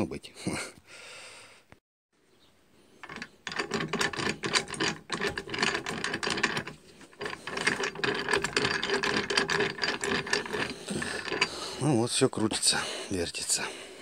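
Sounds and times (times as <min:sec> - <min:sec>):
gears clicking and rattling: 0:03.0 - 0:11.6.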